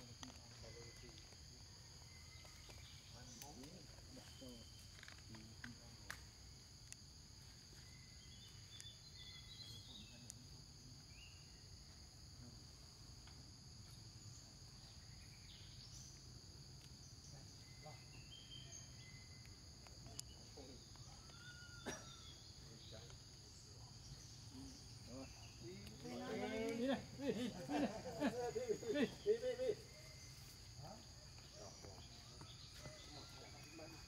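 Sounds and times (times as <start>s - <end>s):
high insect drone: 0.0s - 34.0s.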